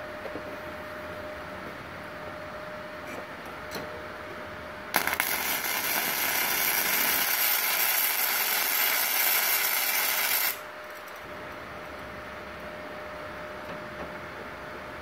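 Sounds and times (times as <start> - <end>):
welding arc cracks: 4.9 - 10.6
welding arc hissing: 4.9 - 10.6.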